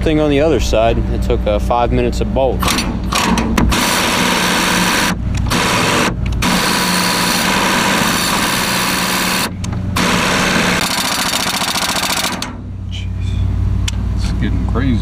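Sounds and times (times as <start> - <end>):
impact wrench hammering: 2.6 - 12.6.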